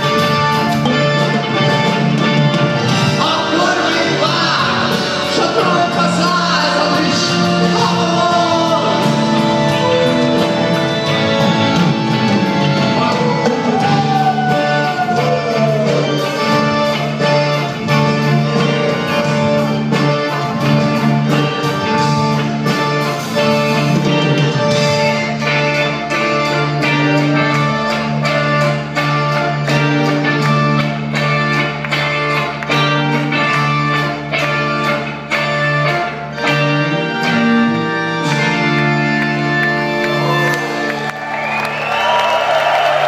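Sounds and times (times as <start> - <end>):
live rock band playing: 0.0 - 43.0.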